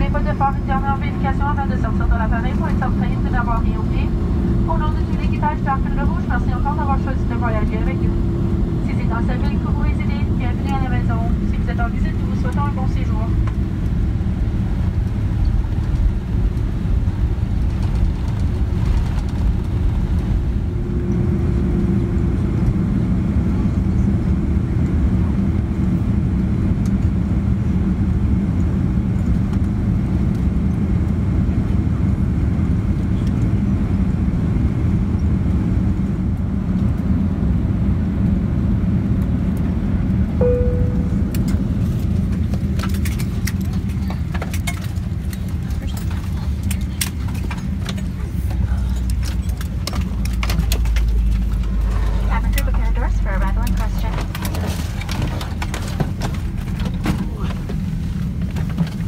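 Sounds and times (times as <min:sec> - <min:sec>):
vehicle rumble from inside: 0:00.0 - 0:59.0
short pitched note: 0:40.4 - 0:41.7.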